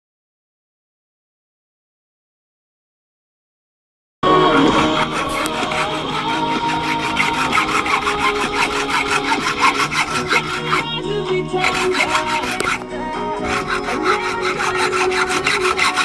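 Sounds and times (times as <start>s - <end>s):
radio music: 4.2s - 16.0s
hand saw cutting bone: 4.4s - 16.0s.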